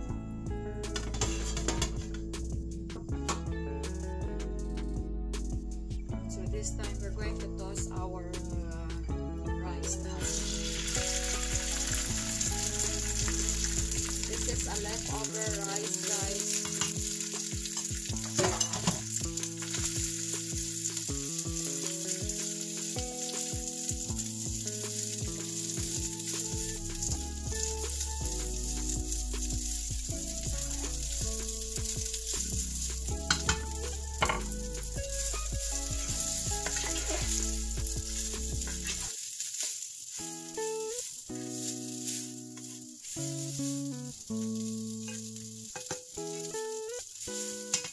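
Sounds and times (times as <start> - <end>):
background music: 0.0 - 39.6, 40.2 - 47.9
rice sizzling in oil: 1.0 - 2.4, 10.2 - 47.9
spatula stirring in pan: 10.7 - 47.9.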